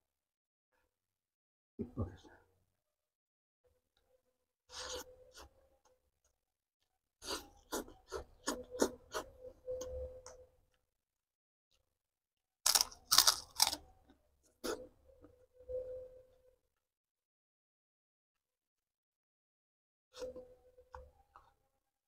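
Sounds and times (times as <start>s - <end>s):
man chewing: 7.2s - 9.4s, 12.7s - 13.8s
crisp crunches: 12.7s - 13.8s.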